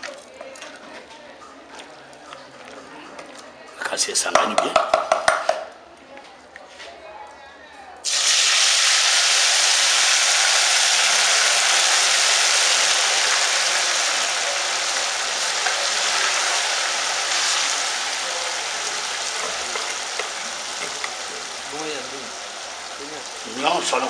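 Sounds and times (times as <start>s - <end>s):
food sizzling in hot oil: 8.0s - 24.0s.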